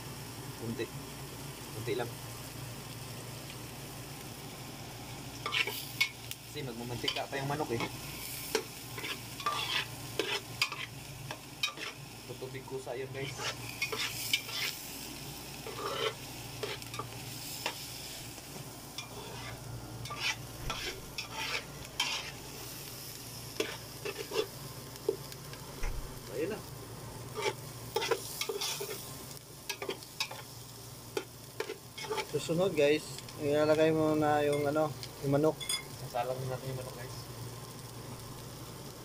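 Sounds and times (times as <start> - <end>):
onions sizzling in oil: 0.0 - 39.0
metal spoon scraping a pot: 9.0 - 10.9, 15.7 - 16.8, 19.0 - 22.4.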